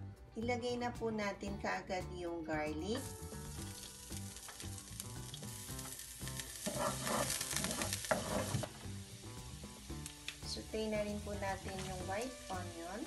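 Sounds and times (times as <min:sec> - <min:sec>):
garlic sizzling in oil: 0:02.8 - 0:13.0
wooden spatula scraping wok: 0:05.7 - 0:09.8, 0:11.1 - 0:13.0.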